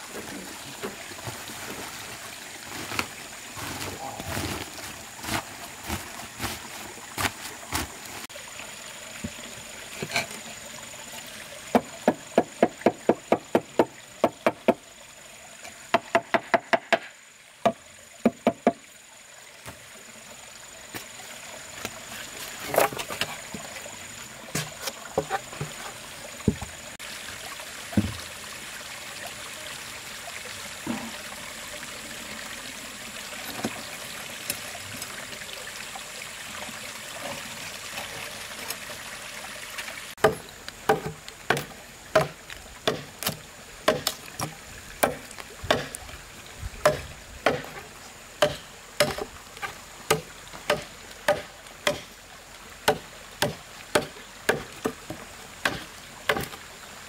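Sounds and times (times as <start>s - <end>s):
small stream running: 0.0s - 57.0s
stick beating blade into wood: 40.2s - 46.0s, 46.9s - 47.8s, 48.4s - 49.3s, 50.1s - 52.1s.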